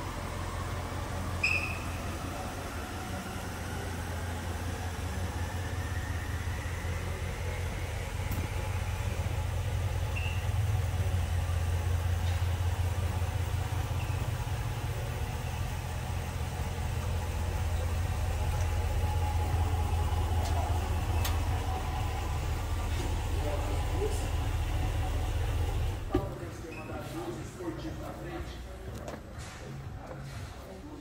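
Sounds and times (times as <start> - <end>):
pickup engine idling: 0.0 - 26.7.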